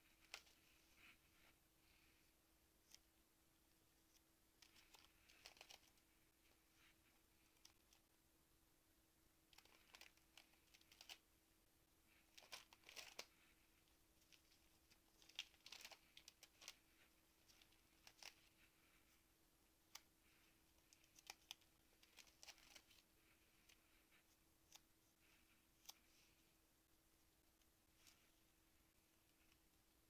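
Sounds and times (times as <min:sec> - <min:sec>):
plastic pages crinkling: 0:04.6 - 0:06.0, 0:09.5 - 0:11.2, 0:12.3 - 0:13.5, 0:14.2 - 0:18.7, 0:20.8 - 0:24.0.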